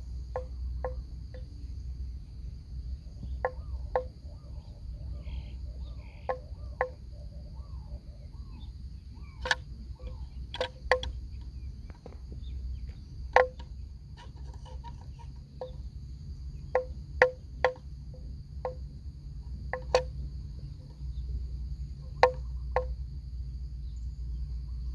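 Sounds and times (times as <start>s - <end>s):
high insect drone: 0.0s - 24.9s.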